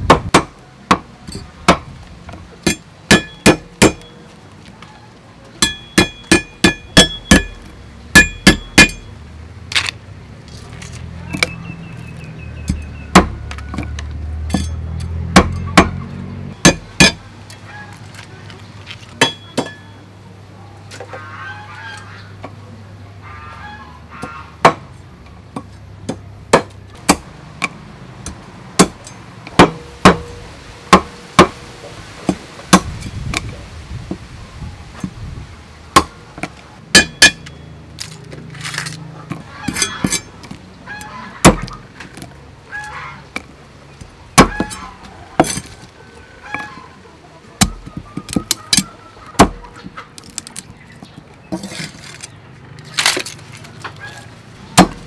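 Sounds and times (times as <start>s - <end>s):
cleaver chopping crab shells on wood: 0.1s - 1.9s, 2.6s - 4.1s, 5.6s - 9.0s, 12.7s - 16.0s, 16.6s - 17.2s, 25.6s - 30.2s, 36.0s - 37.4s, 43.4s - 44.8s, 45.4s - 45.8s, 47.6s - 49.6s, 54.8s - 55.0s.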